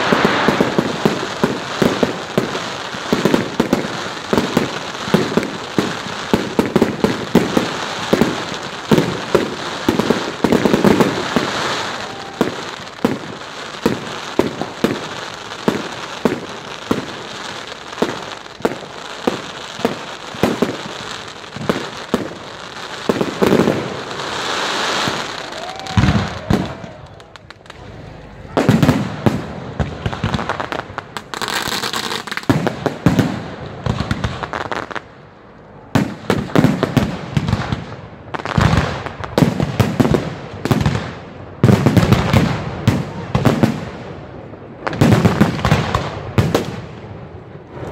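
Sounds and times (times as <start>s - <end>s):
crackle of firework stars: 0.0s - 47.9s.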